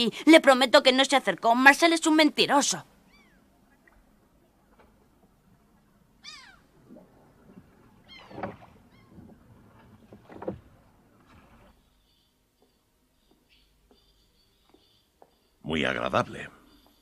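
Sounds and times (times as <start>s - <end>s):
animal high cries: 3.0s - 3.5s, 6.2s - 6.7s.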